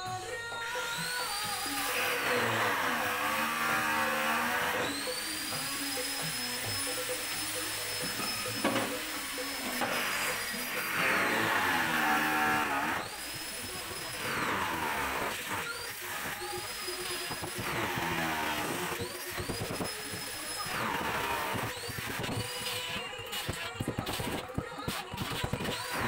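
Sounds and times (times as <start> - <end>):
power tool whine: 0.0 - 26.0
grinding on wood: 1.9 - 16.2.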